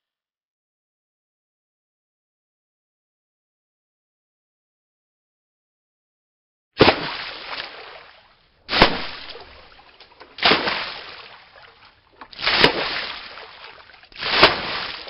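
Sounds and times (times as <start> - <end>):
water splashes: 6.8 - 15.0.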